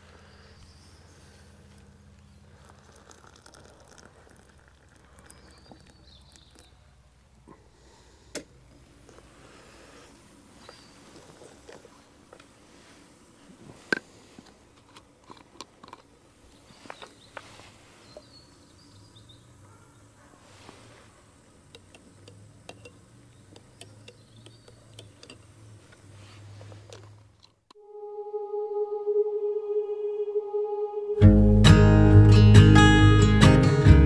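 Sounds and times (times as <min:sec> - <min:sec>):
spoon and mug clicking: 0:21.7 - 0:25.5.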